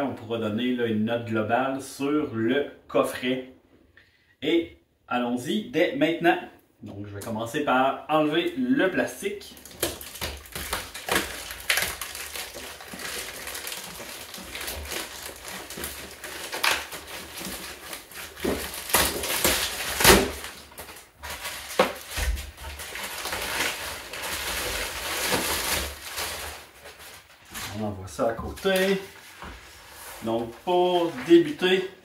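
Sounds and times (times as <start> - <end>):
plastic shrink wrap crinkling: 9.3 - 32.0.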